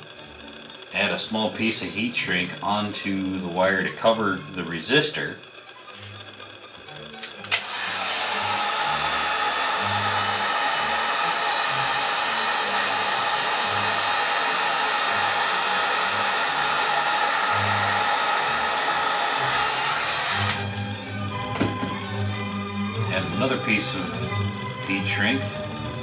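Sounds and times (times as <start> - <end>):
heat gun blowing: 0.0 - 21.8.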